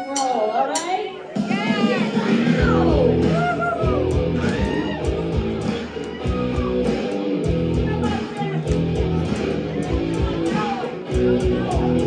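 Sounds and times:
steady drum beat: 0.0s - 12.0s
bass guitar: 2.2s - 12.0s
strummed electric guitars: 2.2s - 12.0s.

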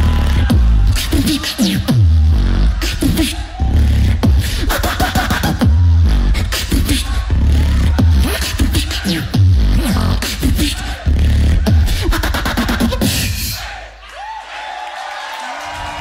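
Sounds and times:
beatboxing into a microphone: 0.0s - 13.6s.

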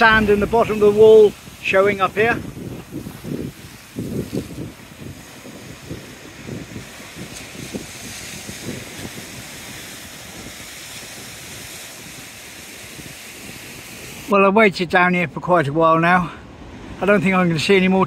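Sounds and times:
wind buffeting microphone: 0.0s - 14.3s
sea waves washing against seawall: 0.0s - 18.0s.

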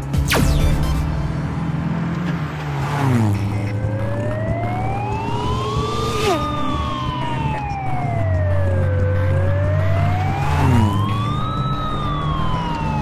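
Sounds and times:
car engine running: 0.0s - 13.0s
cartoon police siren wail: 3.5s - 13.0s.

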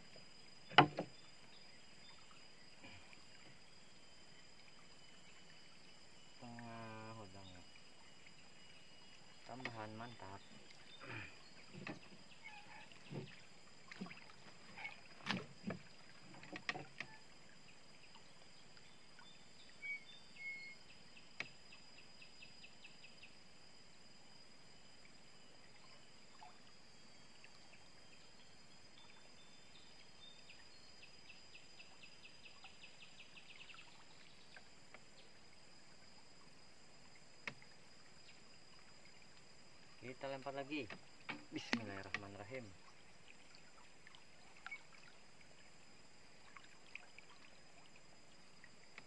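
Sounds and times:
faint high whine: 0.0s - 49.0s
knocks against wooden boat: 0.7s - 1.2s, 11.7s - 12.2s, 15.2s - 17.1s, 40.8s - 42.3s.

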